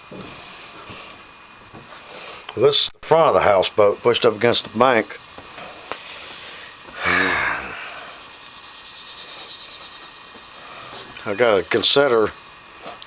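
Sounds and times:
low background hiss: 0.2s - 13.0s
man's breathy grunt: 6.9s - 8.2s.

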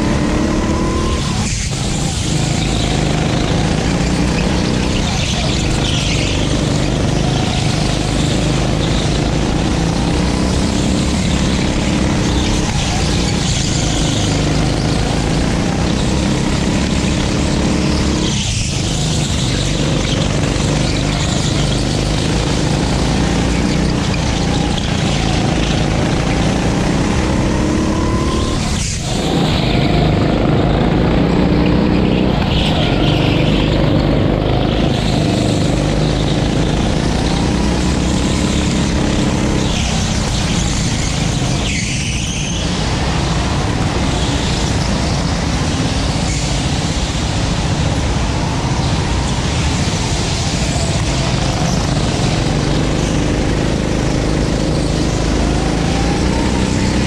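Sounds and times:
go-kart engine revving: 0.0s - 57.0s.

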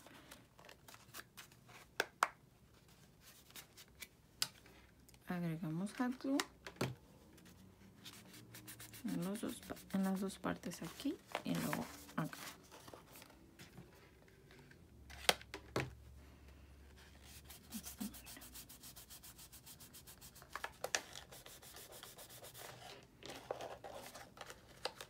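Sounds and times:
fingers rubbing paper: 17.3s - 20.6s.

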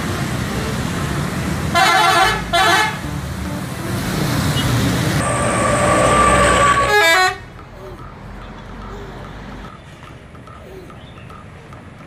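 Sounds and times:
road traffic noise: 0.0s - 12.0s
bus horn blasts: 1.7s - 7.5s
steady high tone: 3.0s - 7.9s.

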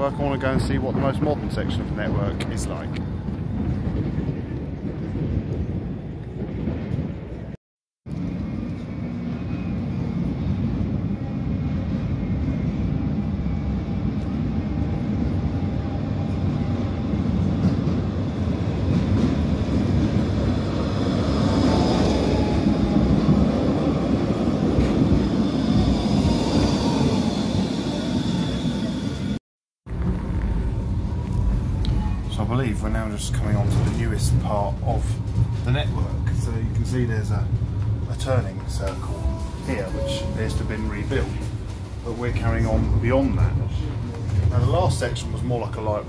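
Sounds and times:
tram wheels rumbling on rails: 0.0s - 46.0s.

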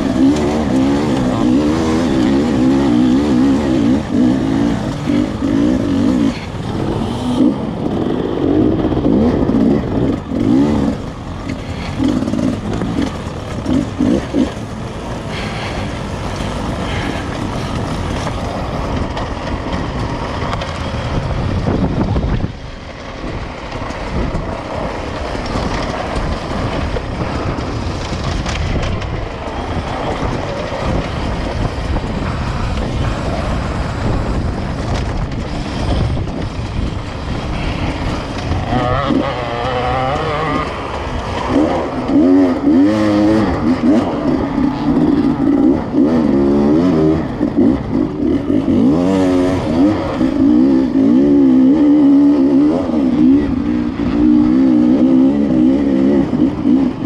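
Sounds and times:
dirt bike engine revving: 0.0s - 57.0s
rough rattly jumble on rocks: 9.2s - 48.8s.

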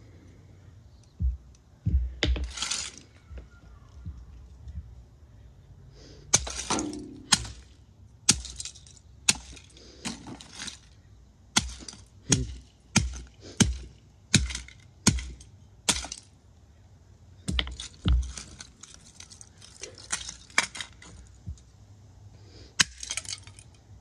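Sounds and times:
loose pieces clattering: 2.2s - 3.2s, 6.4s - 11.0s, 17.5s - 21.4s, 22.8s - 23.9s.

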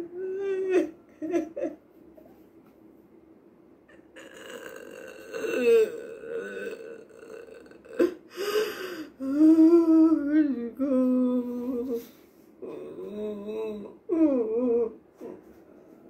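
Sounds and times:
woman sobbing and wailing: 0.0s - 1.8s, 3.9s - 15.4s
woman gasping breath: 8.3s - 9.2s.

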